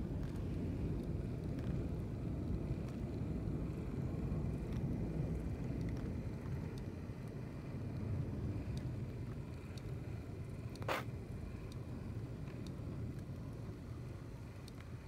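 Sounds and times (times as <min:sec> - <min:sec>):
light ticks: 0:00.2 - 0:01.8, 0:05.6 - 0:10.0, 0:11.6 - 0:13.5, 0:14.5 - 0:15.0.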